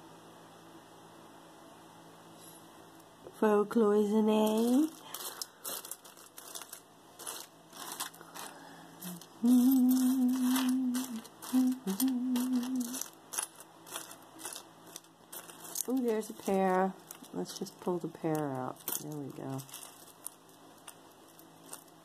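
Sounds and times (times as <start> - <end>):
earrings clinking: 4.4 - 22.0
woman humming: 8.4 - 13.1.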